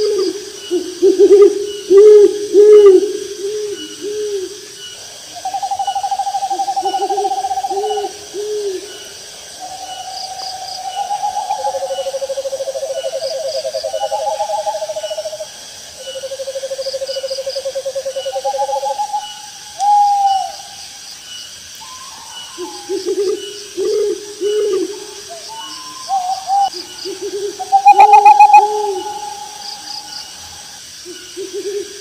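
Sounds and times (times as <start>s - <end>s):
crickets chirping: 0.0s - 32.0s
owls hooting: 21.8s - 30.8s.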